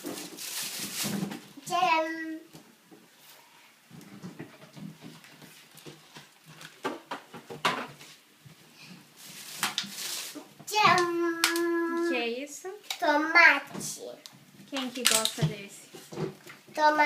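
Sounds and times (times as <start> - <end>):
packages knocking and crinkling: 0.0 - 1.6, 3.9 - 8.2, 9.2 - 11.7
plastic bags rustling: 0.0 - 1.7, 4.1 - 7.1, 8.8 - 12.3.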